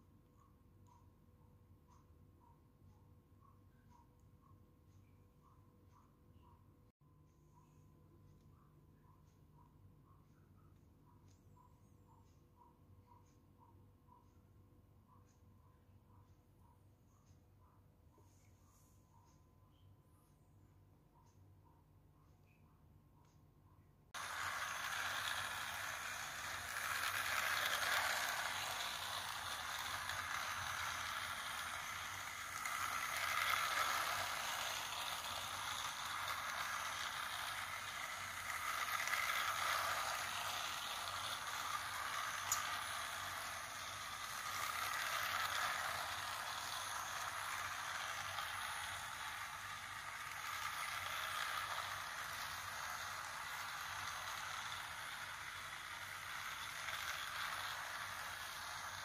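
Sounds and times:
toy train whirring rattle: 24.1 - 59.0.

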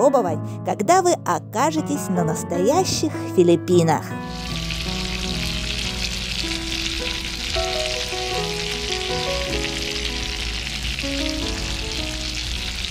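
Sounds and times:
background music melody: 0.0 - 12.9
fish frying in oil: 4.3 - 12.9.

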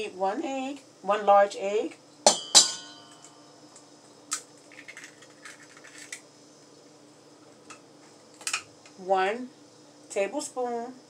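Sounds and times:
bowl ringing: 2.3 - 3.6
egg cracking on bowl rim: 4.3 - 6.2.

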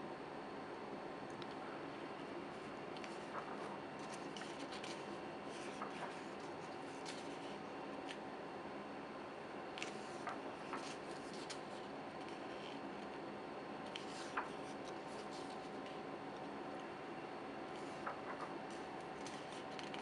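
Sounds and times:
book pages turning: 3.0 - 8.2, 9.7 - 13.2, 13.9 - 16.6, 17.7 - 20.0.

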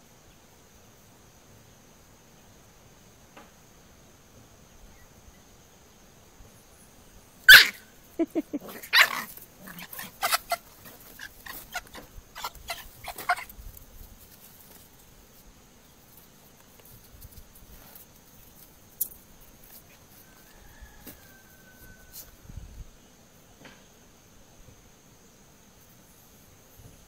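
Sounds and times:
animals scuffling on dirt: 8.7 - 22.4.

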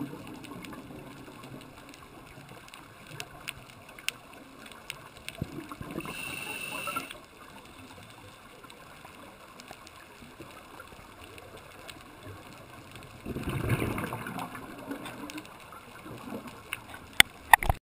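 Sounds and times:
regulator inhalation hiss: 6.0 - 7.1
exhaled bubbles rushing: 12.7 - 16.7
sharp clicks: 16.7 - 17.8.

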